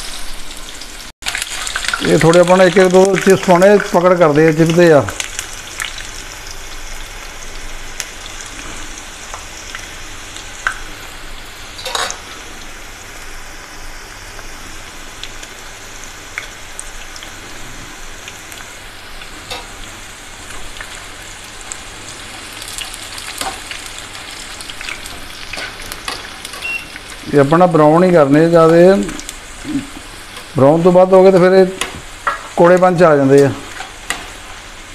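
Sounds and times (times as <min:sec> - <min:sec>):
slices sizzling in hot oil: 0:00.0 - 0:34.9
oil crackles and pops: 0:01.2 - 0:08.5, 0:09.3 - 0:10.9, 0:16.3 - 0:17.4, 0:28.7 - 0:30.6.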